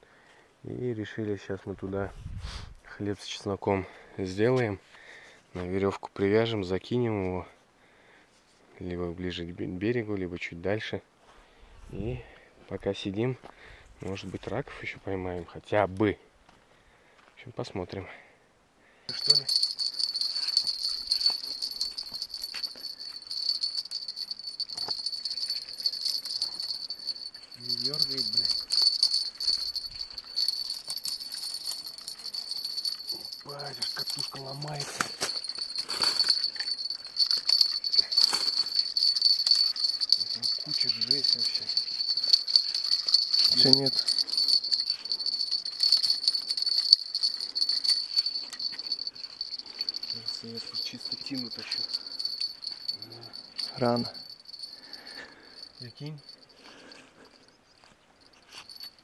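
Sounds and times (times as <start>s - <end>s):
insects chirring: 19.2s - 56.6s.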